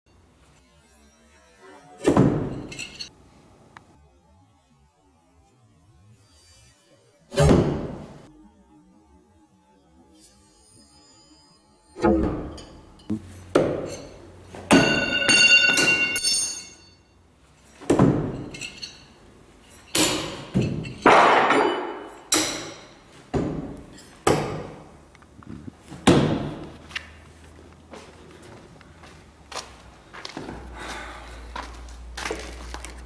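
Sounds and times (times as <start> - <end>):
metallic ringing hits: 10.6 - 17.2.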